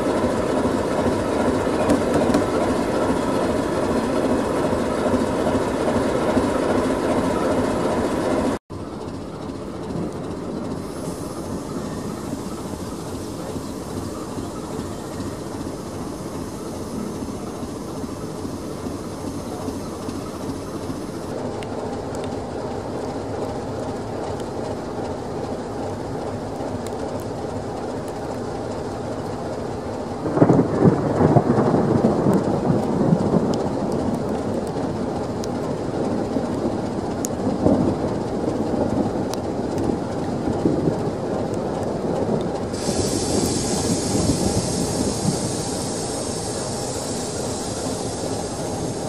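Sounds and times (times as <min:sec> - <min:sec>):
steady hiss: 0:10.8 - 0:21.4, 0:42.6 - 0:49.0
thunder clap rumbling: 0:30.2 - 0:47.2.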